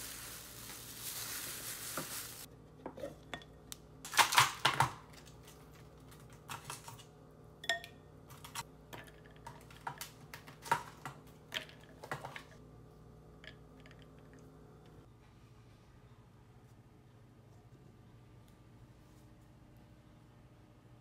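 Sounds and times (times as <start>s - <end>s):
ice cubes clicking and knocking: 8.3s - 12.5s.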